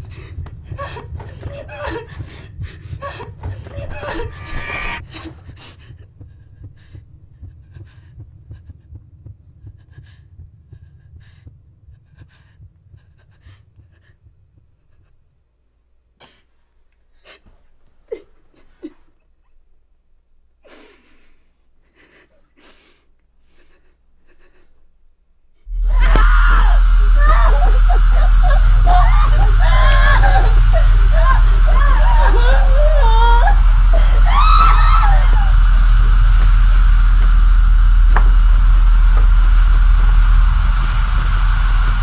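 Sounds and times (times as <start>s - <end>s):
low rumble: 0.0s - 15.1s, 25.7s - 42.0s.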